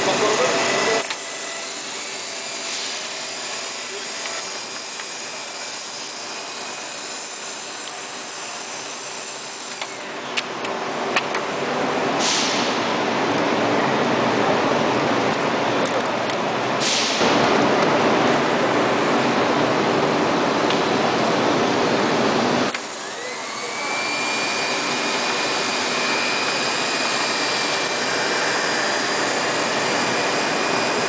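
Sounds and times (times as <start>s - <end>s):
wrapping machine whirring: 17.7s - 31.0s.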